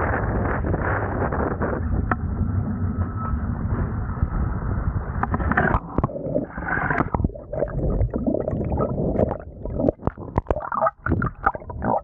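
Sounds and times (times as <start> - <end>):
water gurgling and splashing: 5.2 - 12.0.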